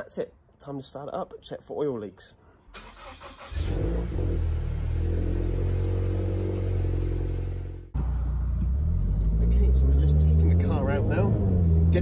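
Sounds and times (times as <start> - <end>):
car engine starting and idling: 2.7 - 12.0.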